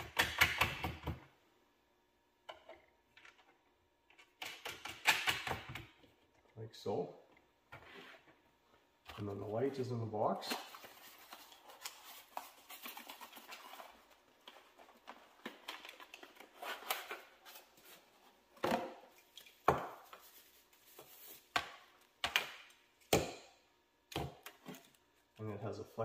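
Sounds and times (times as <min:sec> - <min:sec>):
packaging rustling: 0:10.5 - 0:18.2.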